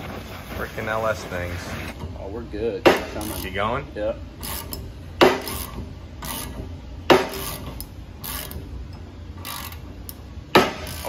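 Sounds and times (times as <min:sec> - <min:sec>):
press ratcheting clicks: 0:03.0 - 0:03.6, 0:04.4 - 0:11.0.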